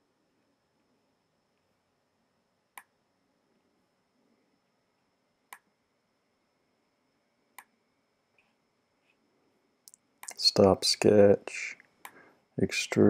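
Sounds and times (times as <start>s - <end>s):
faint background hiss: 0.0s - 13.0s
computer mouse clicks: 5.5s - 5.7s, 9.9s - 10.4s.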